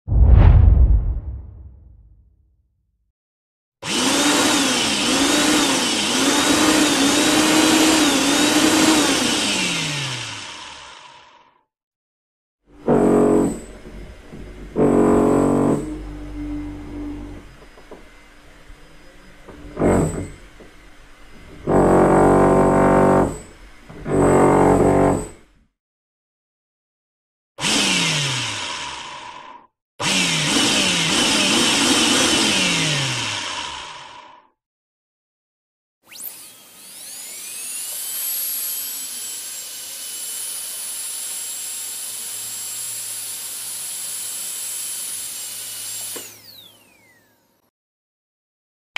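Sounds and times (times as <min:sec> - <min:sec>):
electric drill motor whining: 0:03.8 - 0:11.4, 0:27.6 - 0:34.4, 0:36.1 - 0:47.6.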